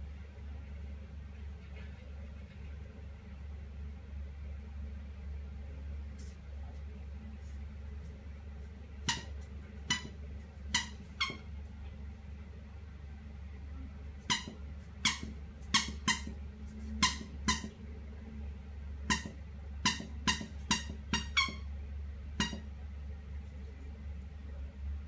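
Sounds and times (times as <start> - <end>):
squeaky dog toy squeaks: 9.0 - 11.5, 14.2 - 16.4, 17.0 - 17.8, 19.1 - 21.7, 22.4 - 22.6.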